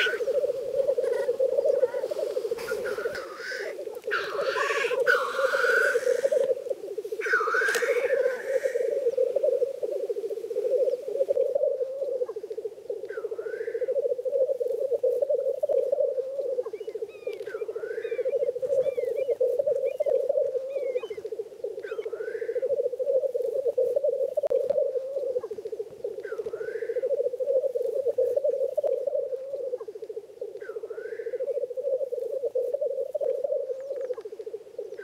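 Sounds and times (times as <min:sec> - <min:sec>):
grouse bubbling chorus: 0:00.0 - 0:35.0
short rising bird call: 0:07.2 - 0:09.0.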